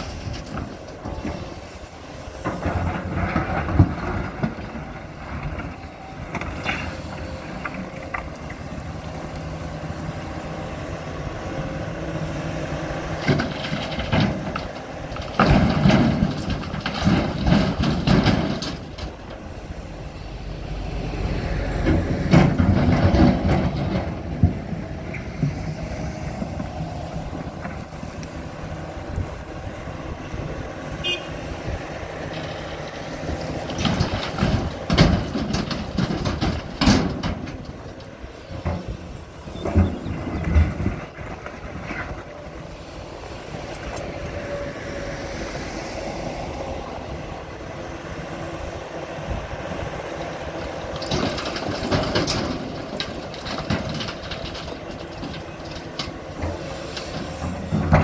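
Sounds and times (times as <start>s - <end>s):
excavator diesel engine running: 0.0s - 58.0s
asphalt chunks clattering: 2.4s - 8.6s, 13.2s - 19.6s, 32.2s - 42.4s, 50.8s - 58.0s.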